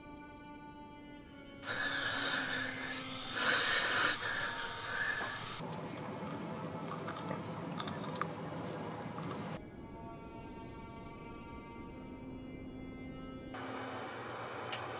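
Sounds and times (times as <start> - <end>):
loud hiss: 1.6 - 5.6
high steady whine: 1.6 - 6.9.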